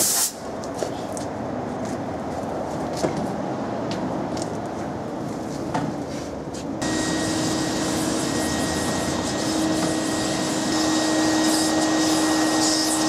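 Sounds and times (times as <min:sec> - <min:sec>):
shop vacuum running: 0:06.8 - 0:13.0.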